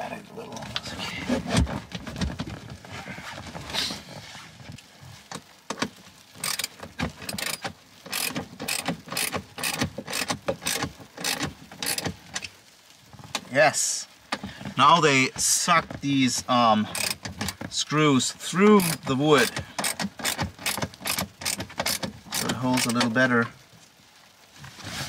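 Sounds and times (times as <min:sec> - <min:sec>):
screwdriver ratchet clicks: 0:07.4 - 0:12.0, 0:17.0 - 0:17.2, 0:18.8 - 0:19.0, 0:19.8 - 0:23.0.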